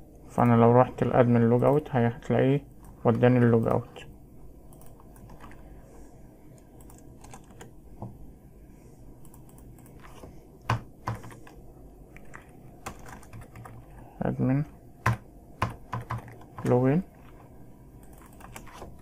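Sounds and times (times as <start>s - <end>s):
computer keyboard typing: 4.6s - 5.7s, 6.6s - 7.8s, 9.2s - 11.6s, 12.2s - 13.9s, 15.0s - 19.0s.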